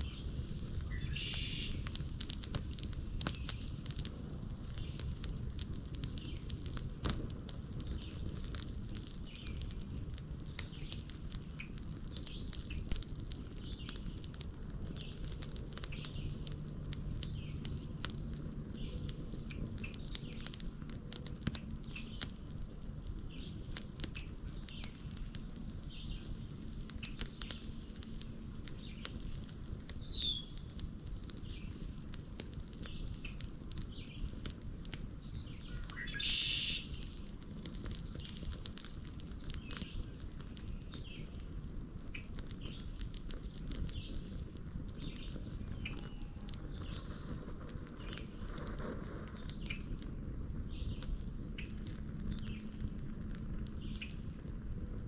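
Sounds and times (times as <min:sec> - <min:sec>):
wood fire crackling: 0:00.0 - 0:55.0
birds chirping: 0:35.3 - 0:37.0.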